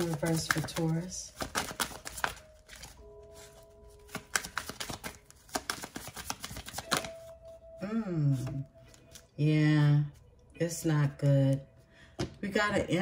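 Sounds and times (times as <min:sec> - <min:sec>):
cards being shuffled: 0:00.0 - 0:07.4.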